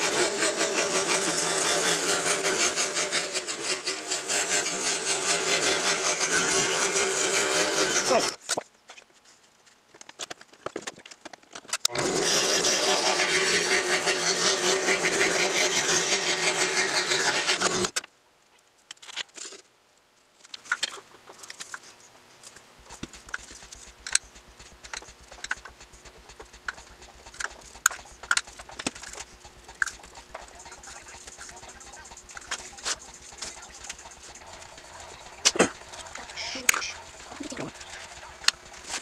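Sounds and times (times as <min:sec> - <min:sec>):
scroll saw cutting wood: 0:00.0 - 0:08.4, 0:11.9 - 0:18.0, 0:22.9 - 0:39.0.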